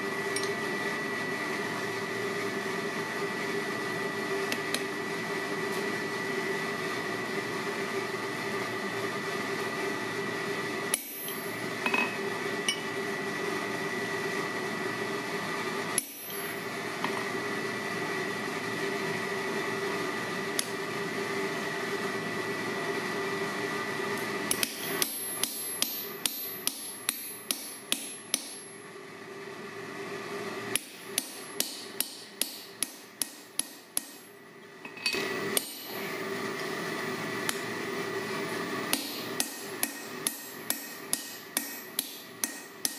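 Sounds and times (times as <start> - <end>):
hammer striking chisel: 24.5 - 28.6, 30.8 - 34.3, 38.9 - 42.9.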